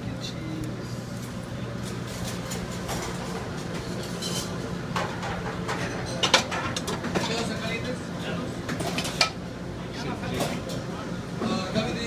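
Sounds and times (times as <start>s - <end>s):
kitchen equipment hum: 0.0s - 12.0s
dishes and metal clinking: 2.1s - 7.5s.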